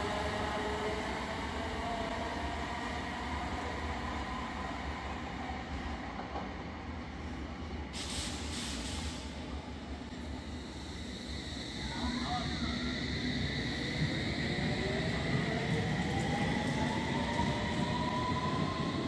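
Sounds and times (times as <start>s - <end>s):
air hiss: 7.9s - 9.5s.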